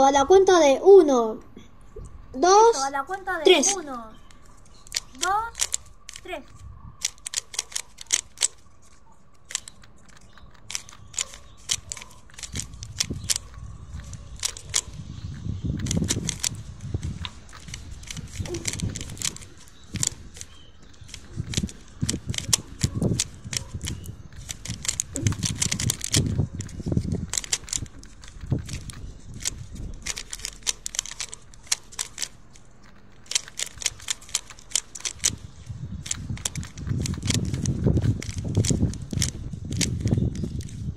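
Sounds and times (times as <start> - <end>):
puzzle cube plastic clicks: 3.5 - 40.9
low rumbling noise: 9.6 - 40.9.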